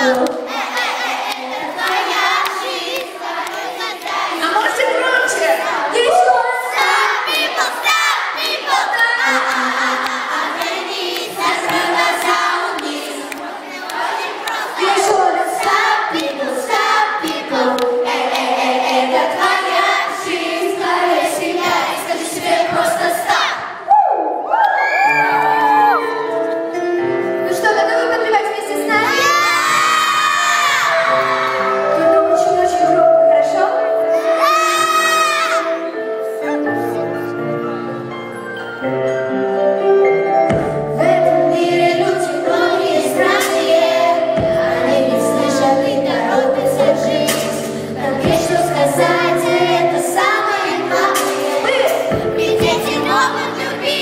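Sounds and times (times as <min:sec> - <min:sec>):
girls singing in harmony: 0:00.0 - 0:24.4, 0:28.9 - 0:36.3, 0:40.9 - 0:54.0
pop backing track: 0:24.9 - 0:54.0
young woman singing: 0:41.0 - 0:54.0.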